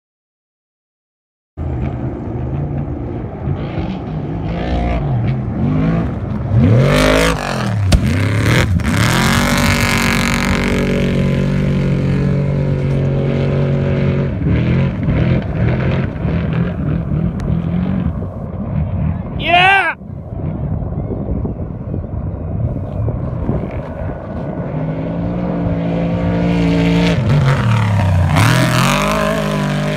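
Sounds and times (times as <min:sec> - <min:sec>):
truck engine revving hard: 0:03.4 - 0:19.2, 0:24.6 - 0:29.9
sharp bang: 0:07.8 - 0:08.6.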